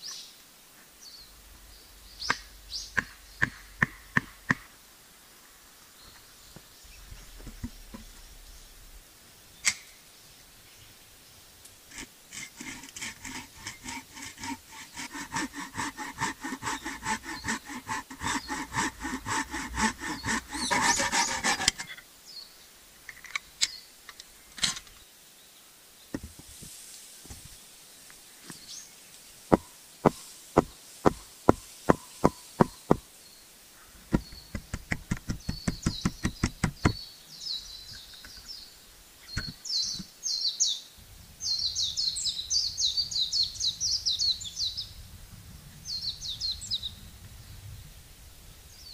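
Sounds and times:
sharp knocks on wood: 3.0 - 4.7, 26.2 - 26.5, 29.5 - 33.0, 34.1 - 37.0
hand saw cutting wood: 11.9 - 22.0, 29.5 - 33.0, 34.1 - 37.0.

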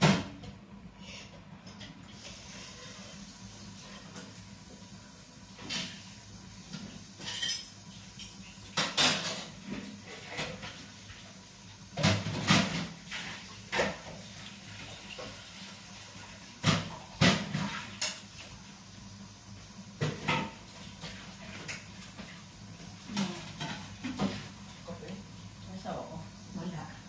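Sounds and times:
dishes clattering in sink: 5.6 - 10.9, 12.0 - 15.6, 16.5 - 18.5, 20.0 - 22.4, 23.1 - 24.6.

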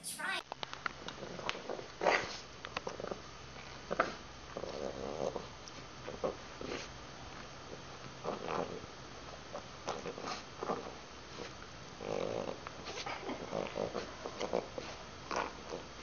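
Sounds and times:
dog grunting: 12.0 - 15.9.

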